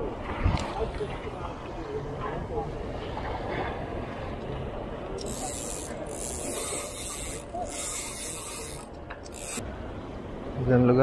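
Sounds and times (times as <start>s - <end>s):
fishing reel whirring: 5.2s - 9.6s.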